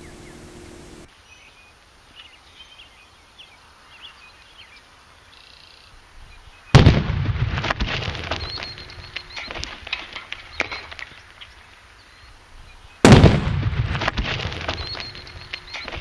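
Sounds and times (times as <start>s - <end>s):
birds chirping faintly: 0.0s - 6.8s, 8.0s - 13.1s, 14.4s - 16.0s
crackles: 6.7s - 12.0s, 13.0s - 16.0s
loud black powder blast: 6.8s - 8.4s, 13.0s - 15.0s.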